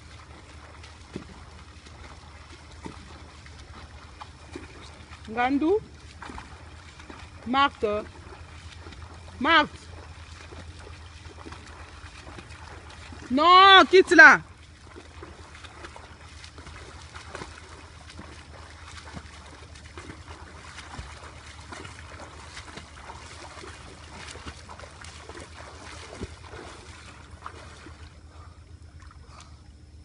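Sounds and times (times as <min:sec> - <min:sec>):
swimmer splashing in pool: 0:00.0 - 0:29.6.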